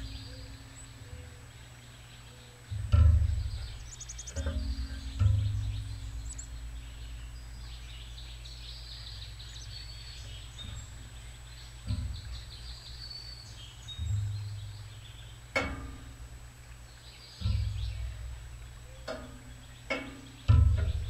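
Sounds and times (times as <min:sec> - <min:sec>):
small birds chirping: 0:00.0 - 0:21.0
dull thumps on feeder: 0:11.8 - 0:12.8, 0:17.4 - 0:21.0.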